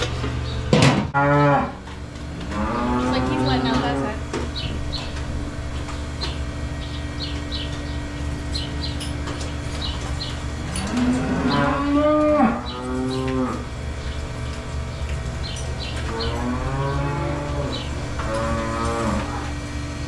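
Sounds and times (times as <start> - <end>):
low hum: 0.0 - 20.0
cow mooing: 1.2 - 4.2, 10.6 - 13.7, 16.0 - 19.6.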